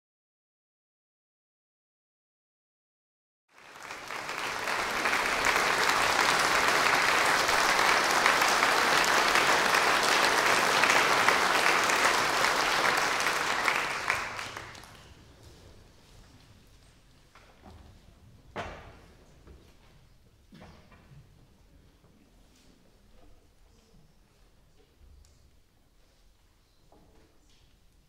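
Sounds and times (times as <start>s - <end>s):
audience applauding: 3.5s - 15.2s.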